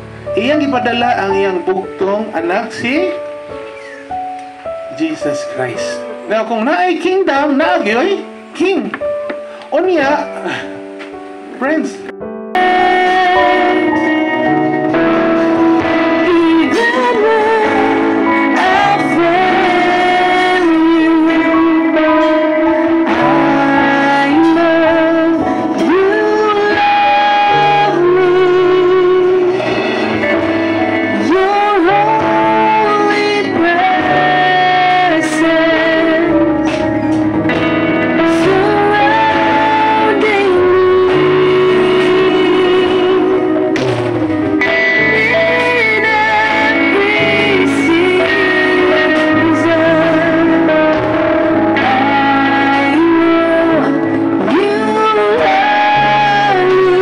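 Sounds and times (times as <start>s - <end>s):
bass: 0.0s - 57.0s
electric guitar: 0.0s - 57.0s
keyboard: 0.0s - 57.0s
worship band playing: 0.0s - 57.0s
woman singing: 12.6s - 14.8s, 16.0s - 29.6s, 31.1s - 36.9s, 38.2s - 43.8s, 45.0s - 57.0s.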